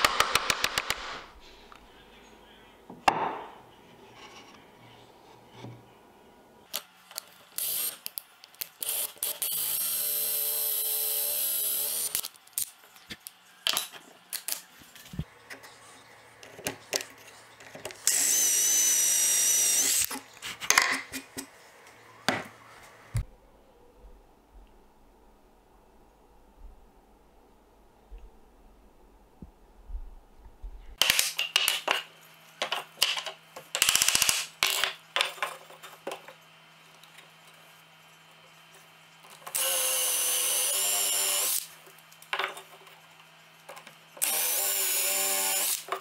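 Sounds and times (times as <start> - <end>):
power drill boring through wood: 8.8 - 12.2, 18.0 - 20.1, 39.5 - 41.7, 44.2 - 45.9.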